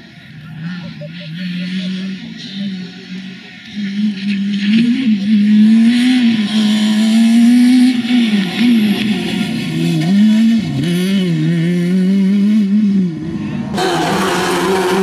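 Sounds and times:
rally car engine revving high: 0.0s - 15.0s.

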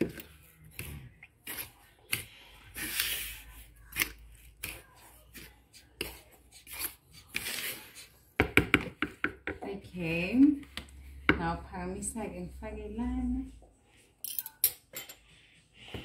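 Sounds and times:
fork scraping flour in bowl: 0.0s - 8.2s.

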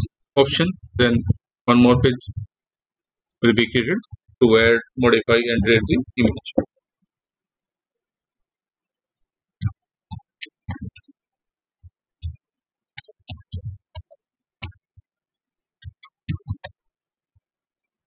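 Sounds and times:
computer keyboard typing: 9.6s - 11.1s, 13.0s - 15.1s, 15.8s - 16.8s.

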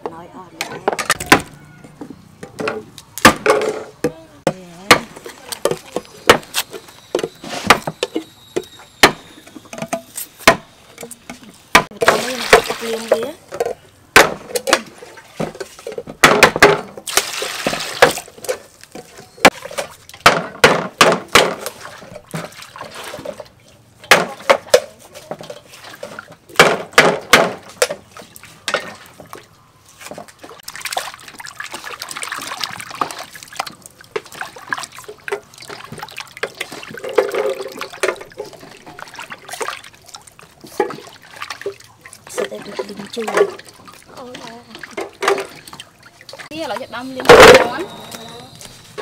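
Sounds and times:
water sloshing and splashing: 0.0s - 49.0s
sharp clatters in a bowl: 30.0s - 48.6s.

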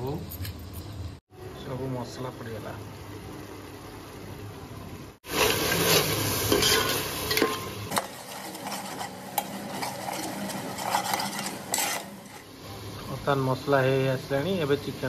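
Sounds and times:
oil sizzling: 2.4s - 15.0s
metal spatula scraping pot: 5.3s - 12.6s.

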